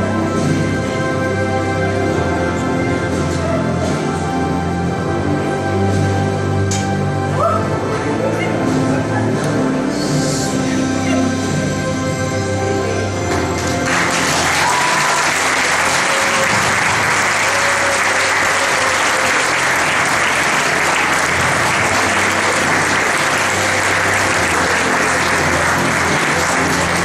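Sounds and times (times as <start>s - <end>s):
background music: 0.0s - 27.0s
audience applause: 13.3s - 27.0s.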